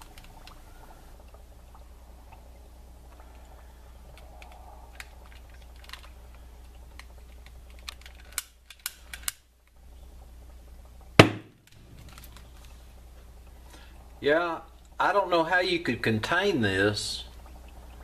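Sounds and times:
small clicks: 0:00.0 - 0:00.6, 0:04.1 - 0:09.8
loud sharp gas pop: 0:11.2 - 0:11.6.

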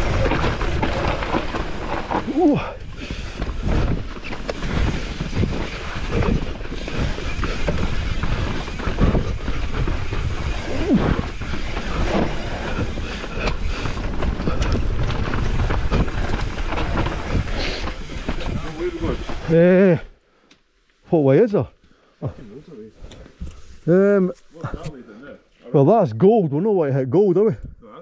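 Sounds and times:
rattling chain and frame: 0:00.0 - 0:19.6
bike tyre noise: 0:00.0 - 0:20.1.

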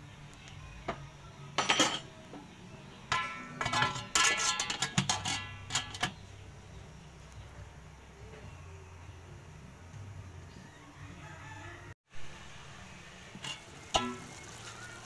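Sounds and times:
metal pot lid clattering: 0:01.6 - 0:02.1, 0:03.1 - 0:06.2, 0:13.4 - 0:14.4.

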